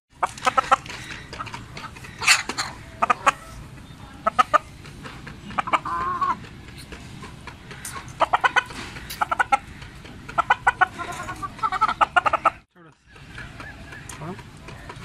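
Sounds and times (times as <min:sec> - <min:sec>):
chickens clucking: 0:00.1 - 0:15.0
chicken squawk: 0:00.2 - 0:03.6, 0:05.6 - 0:06.4, 0:10.4 - 0:14.9.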